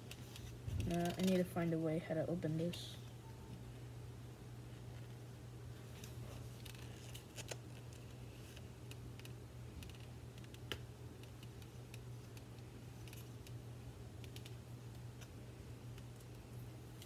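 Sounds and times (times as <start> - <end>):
plastic packaging clicks and rustles: 0.0 - 1.5, 5.9 - 13.6
steady low hum: 0.0 - 17.0.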